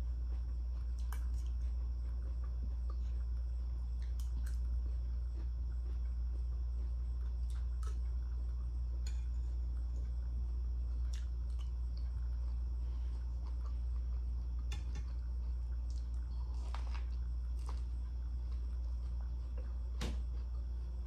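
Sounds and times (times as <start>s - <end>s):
chewing: 0.0s - 21.0s
steady low hum: 0.0s - 21.0s.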